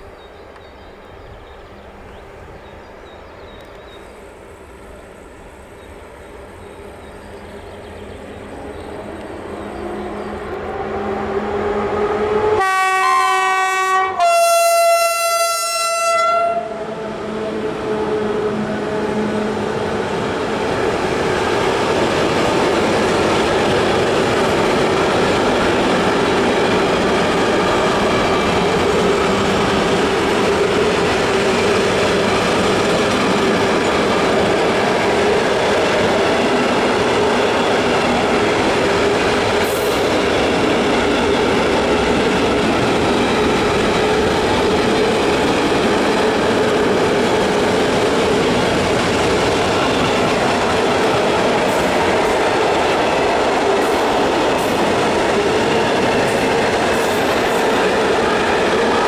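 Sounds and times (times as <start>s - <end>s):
electric locomotive passing: 0.0s - 59.0s
train horn blasts: 9.7s - 19.6s
train wheels clattering: 20.7s - 59.0s.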